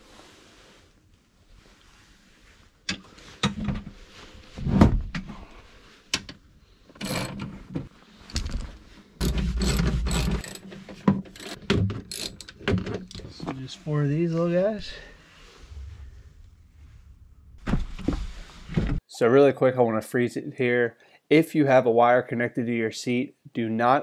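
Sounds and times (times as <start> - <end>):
ratchet wrench clicking: 11.4 - 12.5.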